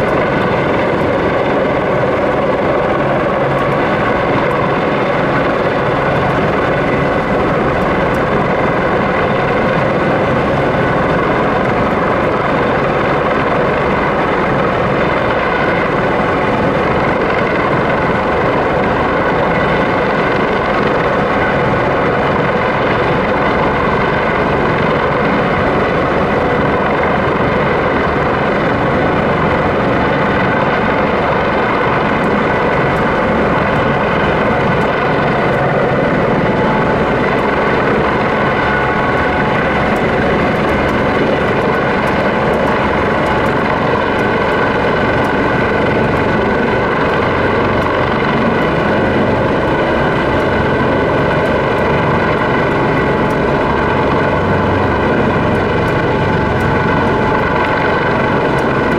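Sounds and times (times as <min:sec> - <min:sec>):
helicopter hovering drone: 0:00.0 - 0:58.9.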